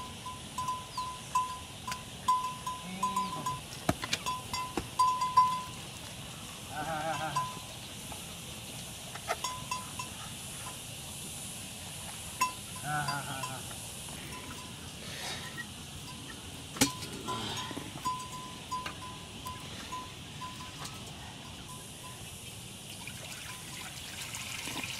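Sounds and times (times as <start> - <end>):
wavering bleat: 6.7 - 7.6, 12.8 - 13.7.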